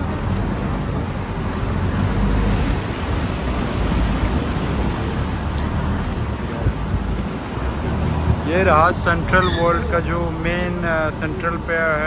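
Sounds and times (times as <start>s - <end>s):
boat engine humming: 0.0s - 12.0s
rushing water: 0.0s - 12.0s
wind: 0.0s - 12.0s.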